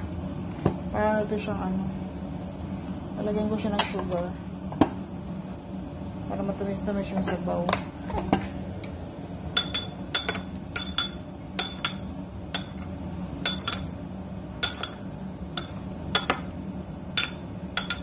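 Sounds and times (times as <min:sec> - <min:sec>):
ceramic spoon clinking against bowl: 0:09.6 - 0:13.9, 0:14.6 - 0:15.0, 0:15.6 - 0:16.5, 0:17.2 - 0:18.0.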